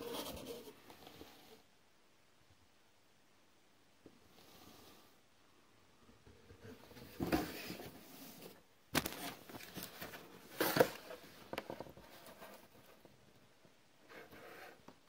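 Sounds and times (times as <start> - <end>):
cardboard scraping and rustling: 6.6 - 13.1.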